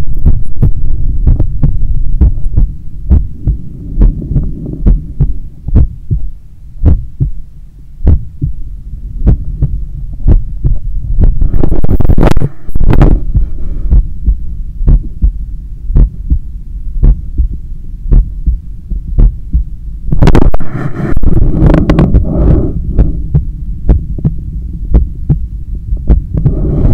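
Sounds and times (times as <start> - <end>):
heartbeat through stethoscope: 0.0 - 7.4, 8.0 - 8.6, 9.2 - 26.9
low hum: 0.0 - 26.9.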